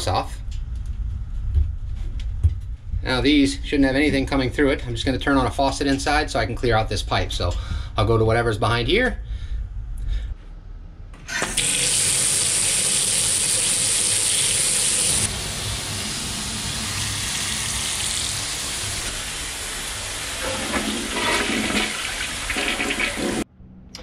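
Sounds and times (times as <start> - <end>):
sink tap running into basin: 11.3 - 23.4
toilet flushing: 11.3 - 23.4
water rushing from bathtub spout: 11.4 - 23.4.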